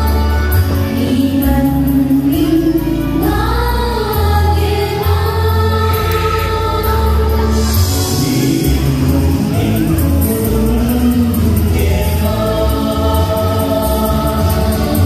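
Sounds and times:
woman singing into microphone: 0:00.0 - 0:08.8
amplified backing music with bass: 0:00.0 - 0:15.0.

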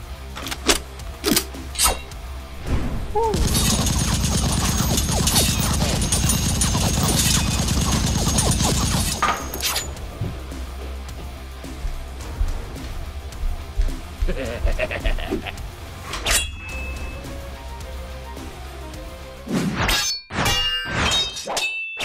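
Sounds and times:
background music: 0:00.0 - 0:22.0
rapid-fire rattle: 0:03.3 - 0:10.0.

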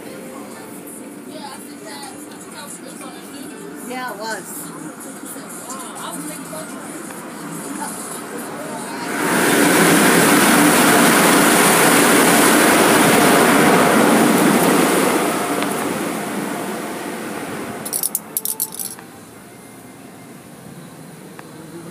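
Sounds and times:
car wash equipment rushing: 0:06.2 - 0:17.9
sharp high-pitched rattles: 0:17.8 - 0:19.1.

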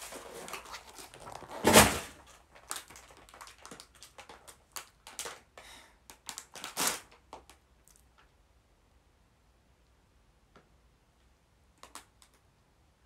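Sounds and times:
paper sheet rustling: 0:00.0 - 0:03.8
plastic bag crinkling: 0:00.0 - 0:05.5, 0:06.2 - 0:07.6.

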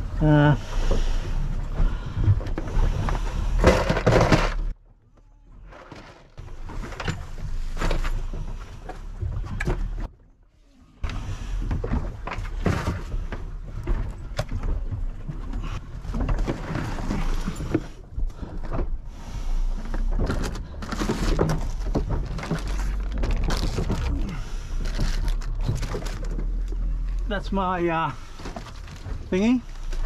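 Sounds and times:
low steady rumble: 0:00.0 - 0:30.0
clothing and bags rustling: 0:11.0 - 0:30.0.

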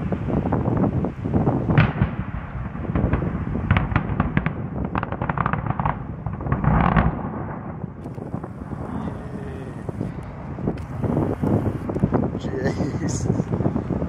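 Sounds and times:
blast cracks: 0:01.7 - 0:12.1
deep rumble: 0:06.3 - 0:14.0.

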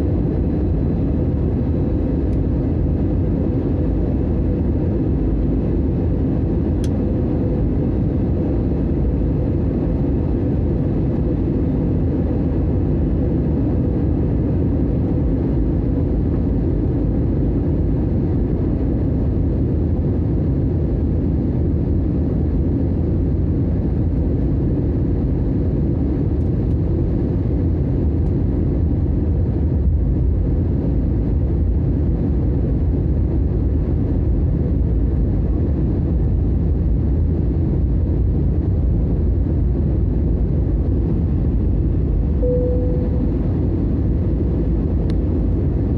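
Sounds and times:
jet engine drone: 0:00.0 - 0:45.9
rushing airflow: 0:37.9 - 0:45.9
faint steady hum: 0:39.5 - 0:45.9.

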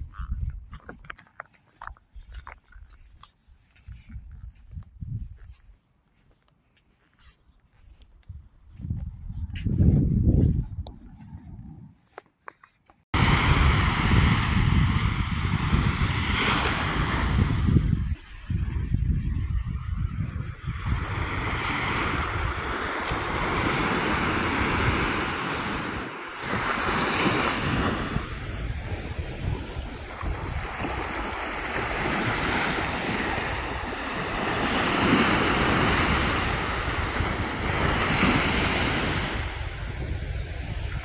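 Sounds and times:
wind buffeting microphone: 0:00.0 - 0:01.2, 0:02.1 - 0:05.7, 0:08.1 - 0:12.1, 0:13.2 - 0:41.0
small waves on sandy shore: 0:13.2 - 0:41.0.

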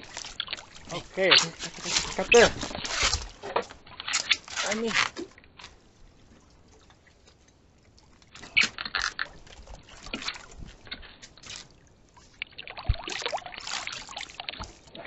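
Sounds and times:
fish thrashing at surface: 0:00.0 - 0:05.3
water splashing against boat: 0:00.0 - 0:15.0.

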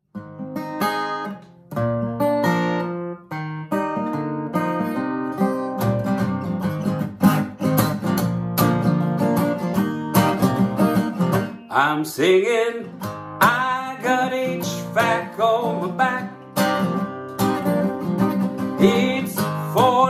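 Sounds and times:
acoustic guitar picking and strumming: 0:00.1 - 0:20.0.

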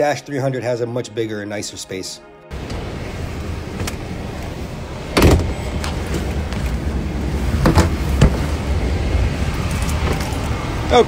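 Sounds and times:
airliner cabin hum: 0:02.5 - 0:11.0
knocks and thumps of handling: 0:07.6 - 0:08.5.

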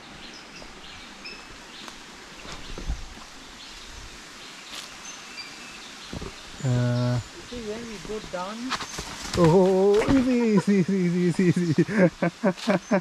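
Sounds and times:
steady background hiss: 0:00.0 - 0:13.0
soft footsteps on path: 0:01.8 - 0:04.0, 0:07.5 - 0:10.6.

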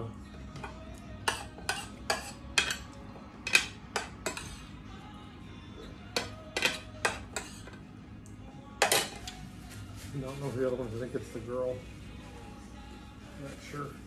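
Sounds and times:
cutlery scraping on plate: 0:00.6 - 0:04.7, 0:06.1 - 0:07.8, 0:08.8 - 0:09.4.

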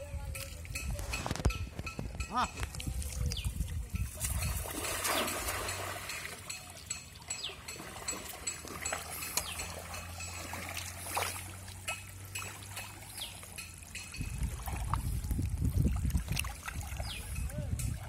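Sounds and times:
water trickling and dripping: 0:02.5 - 0:18.0
net splashing into water: 0:04.2 - 0:06.4, 0:07.8 - 0:13.5.

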